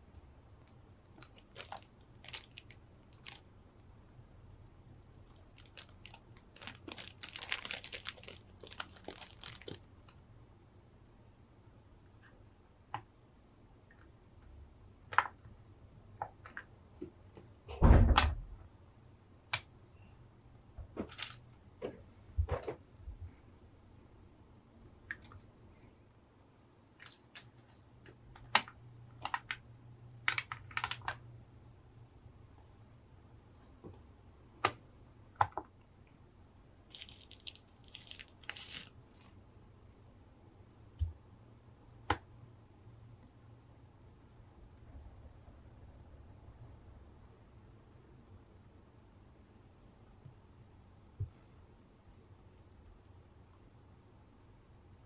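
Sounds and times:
plastic wrapping rustling: 1.2 - 3.5, 5.3 - 10.2, 21.0 - 21.4, 27.0 - 27.8, 30.3 - 31.2, 36.9 - 39.4
loud thump: 17.8 - 18.4
plastic parts clicking: 30.2 - 31.2.

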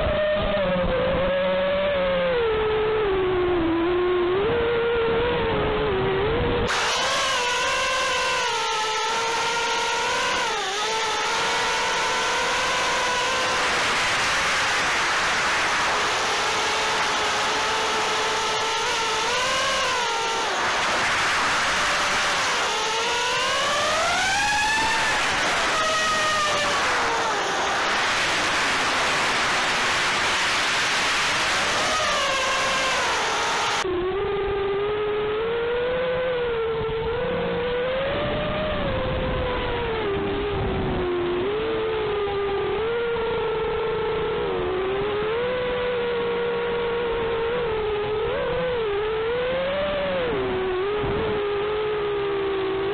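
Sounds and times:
quadcopter motors whining: 0.0 - 52.9
propeller wash rushing: 6.7 - 33.8.

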